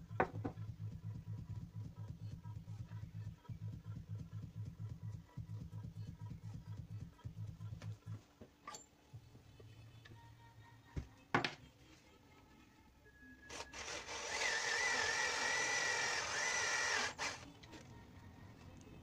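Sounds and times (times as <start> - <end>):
cordless drill boring into wood: 13.5 - 17.4.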